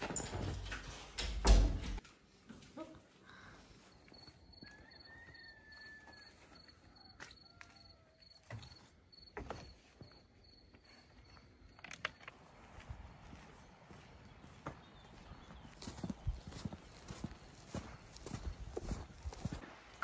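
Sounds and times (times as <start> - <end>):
cricket chirping: 3.5 - 12.4.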